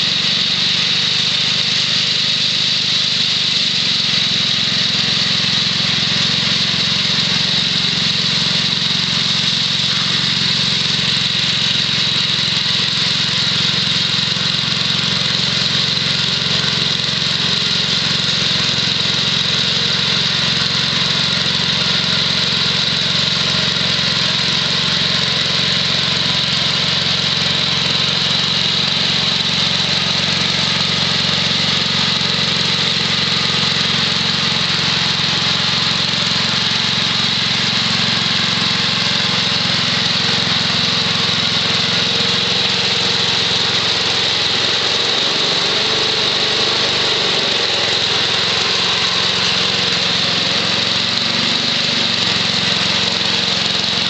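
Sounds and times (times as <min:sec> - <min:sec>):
small engine running steadily: 0:00.0 - 0:54.0.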